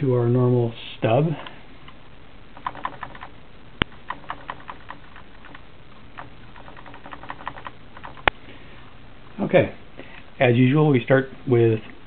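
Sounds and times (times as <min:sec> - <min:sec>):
keyboard keystrokes clicking: 0:02.6 - 0:08.3.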